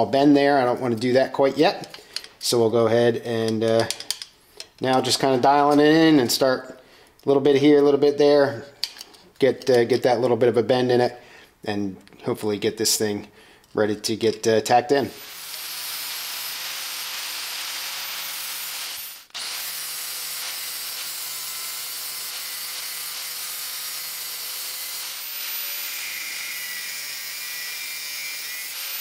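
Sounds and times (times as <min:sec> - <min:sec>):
angle grinder cutting sheet metal: 0:15.1 - 0:29.0.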